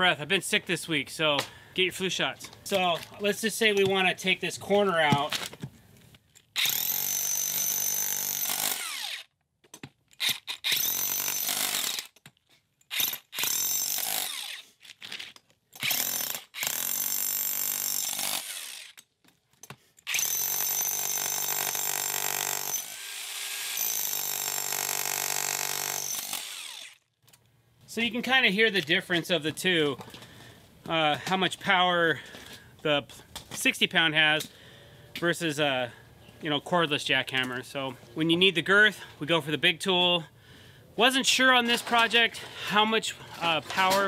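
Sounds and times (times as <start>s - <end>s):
small jackhammer chipping: 6.6s - 9.3s, 10.2s - 12.2s, 12.9s - 14.6s, 15.8s - 19.0s, 20.1s - 27.0s
jackhammer pounding concrete: 15.8s - 18.5s, 20.1s - 26.9s.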